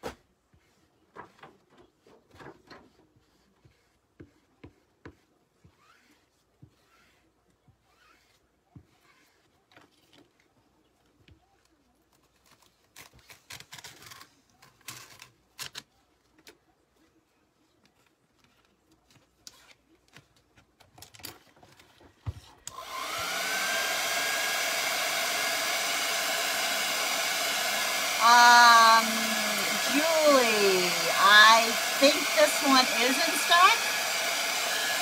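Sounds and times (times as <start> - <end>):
hair dryer blowing: 22.7 - 35.0.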